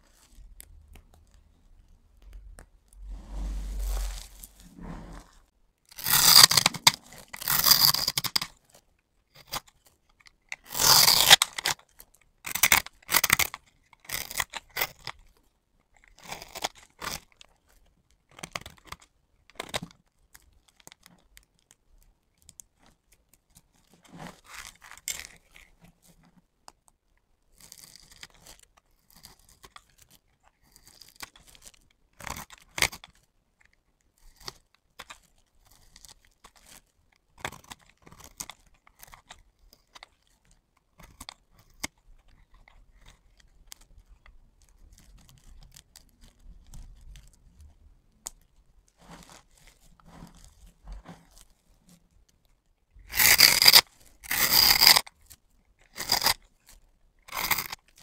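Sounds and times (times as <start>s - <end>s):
knife shaving soap crunching: 6.0s - 8.8s, 9.4s - 15.3s, 15.9s - 17.6s, 27.5s - 47.4s, 53.0s - 58.0s.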